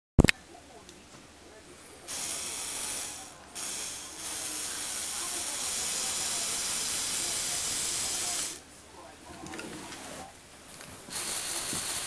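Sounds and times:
small electric motor and gears whirring: 0:10.9 - 0:12.0.

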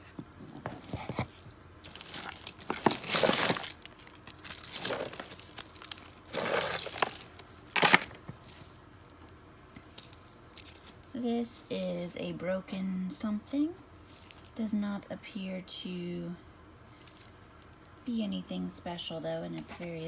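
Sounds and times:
jewelry clinking and rattling: 0:00.0 - 0:11.1.

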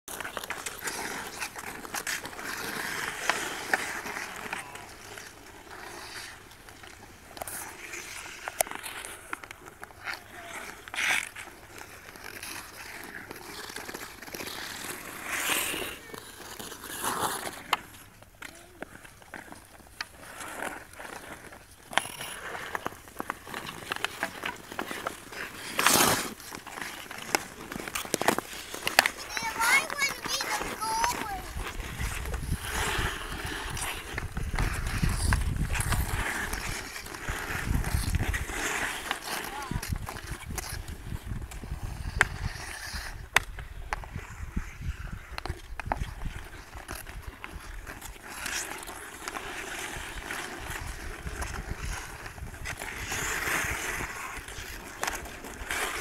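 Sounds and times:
hockey sticks clacking on ice: 0:00.1 - 0:56.0
skate blades scraping ice: 0:00.1 - 0:56.0
sharp crack: 0:23.5 - 0:29.4
wind rumble on microphone: 0:31.5 - 0:36.7, 0:37.6 - 0:38.4, 0:44.0 - 0:46.4.

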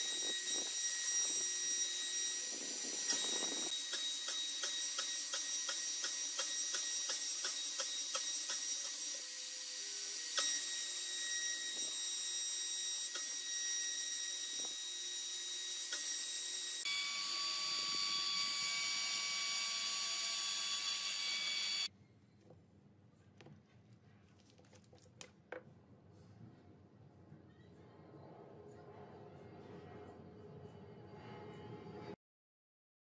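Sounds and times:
router spindle whine: 0:00.0 - 0:21.9.

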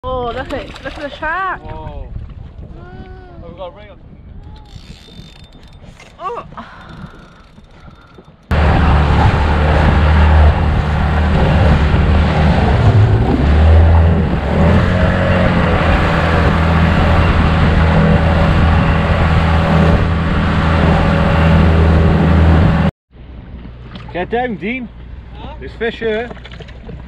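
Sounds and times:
outboard motor droning: 0:04.6 - 0:27.0
wind rush: 0:08.5 - 0:22.9
water rushing: 0:08.5 - 0:27.0.

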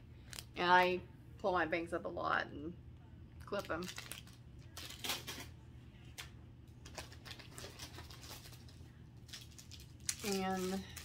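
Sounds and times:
low steady hum: 0:00.0 - 0:11.0
plastic packaging crinkling: 0:03.5 - 0:11.0.

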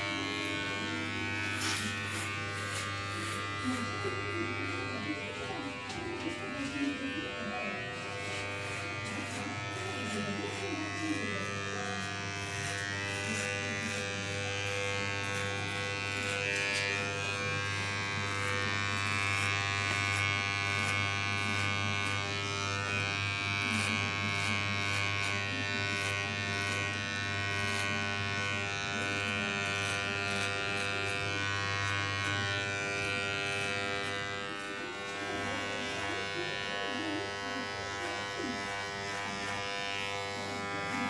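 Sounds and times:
electric hair clipper buzzing: 0:00.0 - 0:41.0.

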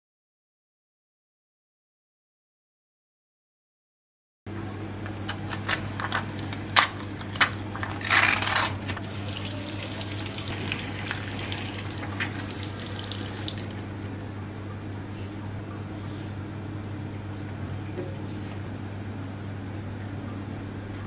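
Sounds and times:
tap water running into sink: 0:09.1 - 0:13.8.

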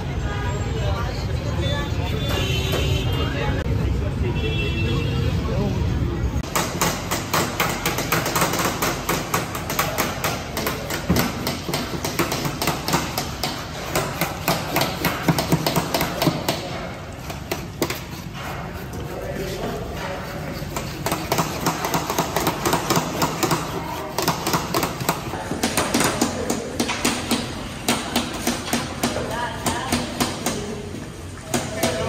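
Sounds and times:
kitchen tools knocking and clanking: 0:06.4 - 0:32.0.

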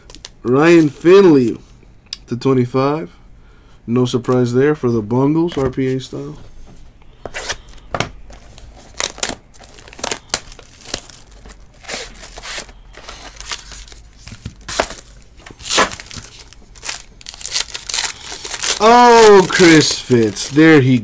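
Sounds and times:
foil pack crinkling and tearing: 0:08.3 - 0:21.0.

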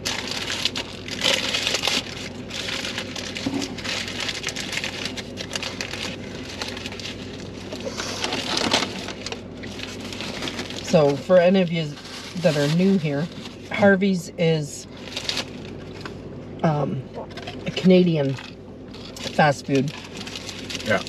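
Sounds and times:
chewing and crunching food: 0:00.0 - 0:11.3, 0:17.1 - 0:21.0.

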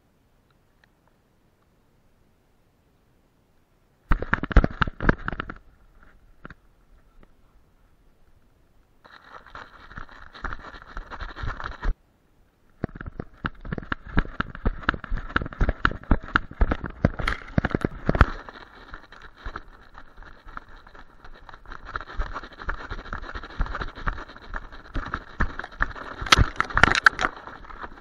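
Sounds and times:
rustling hiss: 0:00.0 - 0:28.0
camera mount knocking and rattling: 0:26.2 - 0:27.9.

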